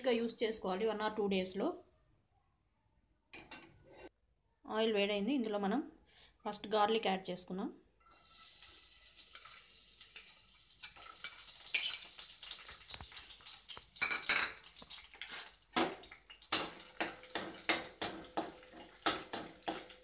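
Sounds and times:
metal spatula scraping pan: 3.4s - 4.1s
garlic sizzling in hot oil: 8.0s - 20.0s.

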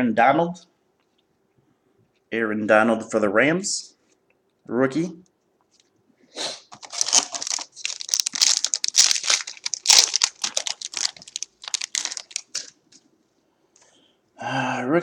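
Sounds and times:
card pack wrapper crinkling and tearing: 6.7s - 12.8s.

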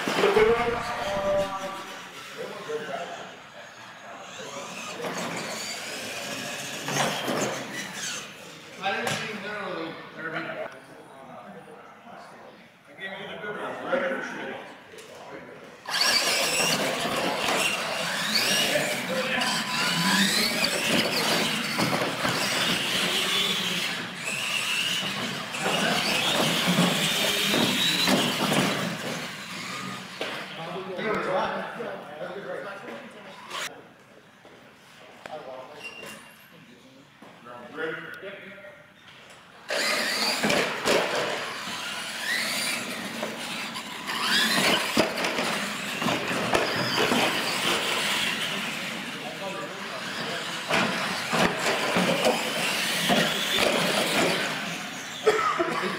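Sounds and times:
toy truck motors whining: 0.1s - 8.8s, 15.8s - 30.8s, 33.3s - 33.7s, 39.6s - 55.2s.

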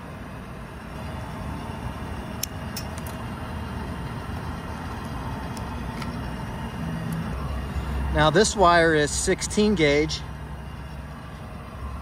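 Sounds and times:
wire strippers clicking: 2.4s - 3.3s, 4.3s - 6.3s.

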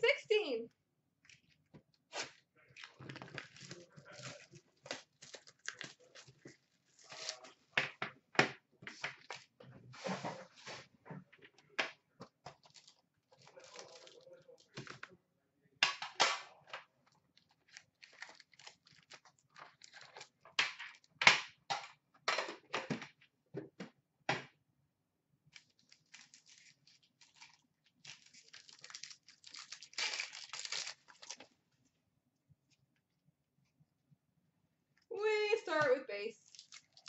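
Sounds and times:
foil packs crinkling: 1.3s - 7.7s, 12.6s - 14.8s, 17.4s - 21.1s, 25.6s - 31.6s, 36.4s - 37.0s.

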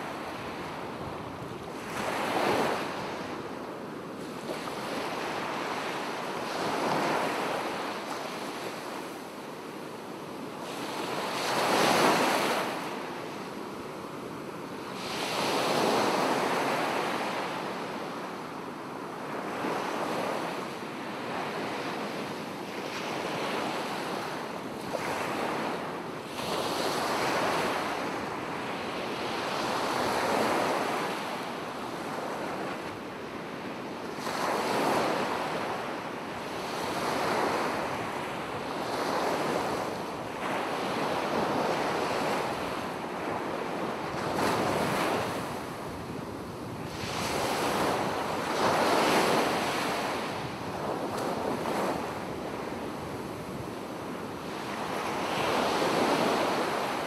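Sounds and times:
waves washing ashore: 22.8s - 57.0s.

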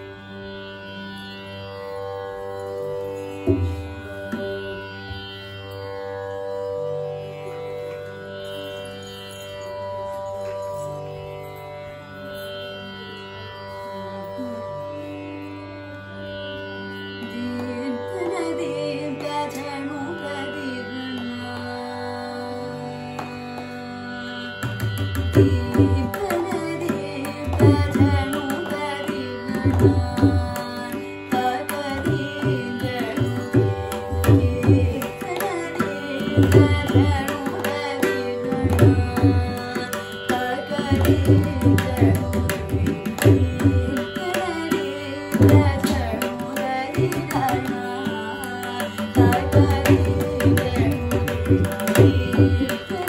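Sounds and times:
person singing: 13.9s - 15.1s, 17.2s - 22.3s, 25.4s - 53.0s.

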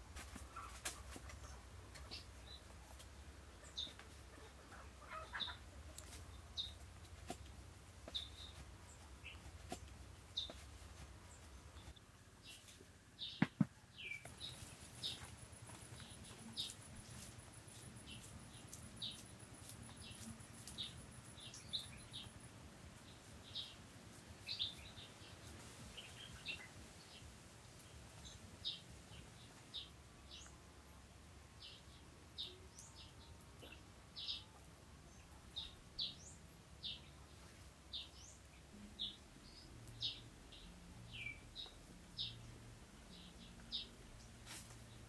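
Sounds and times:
small birds chirping: 0.3s - 30.6s, 31.6s - 45.0s
sharp taps: 13.4s - 13.7s.

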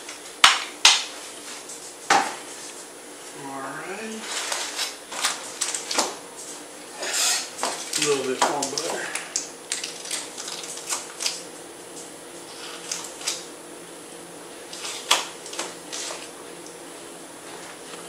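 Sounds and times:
aluminium foil crinkling: 4.2s - 13.5s, 14.7s - 16.4s.

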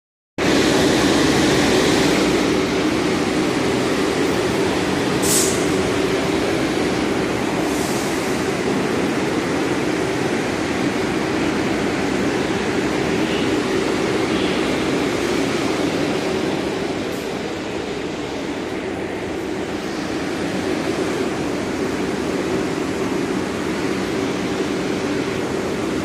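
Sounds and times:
subway train humming: 0.4s - 26.0s
short hisses: 5.2s - 5.8s.

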